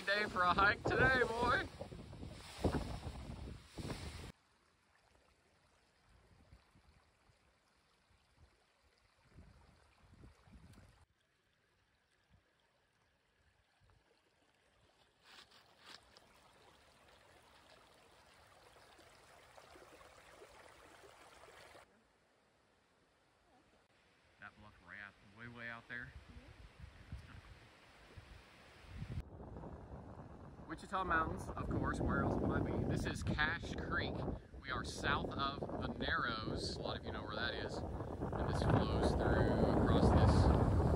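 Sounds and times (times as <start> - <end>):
wind on microphone: 0.0 - 4.3, 9.2 - 11.0, 26.1 - 40.9
creek trickling over rocks: 0.0 - 21.9, 36.5 - 40.9.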